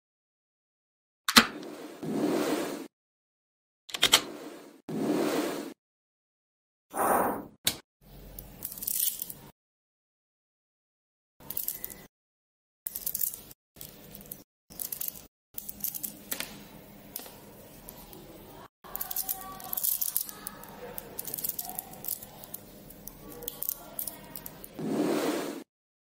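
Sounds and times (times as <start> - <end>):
magnet balls clicking: 18.9 - 24.8.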